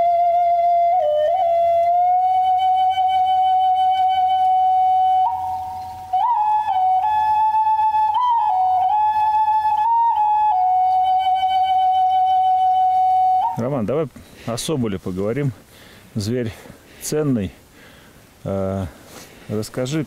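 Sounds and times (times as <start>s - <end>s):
solo flute: 0.0s - 13.7s.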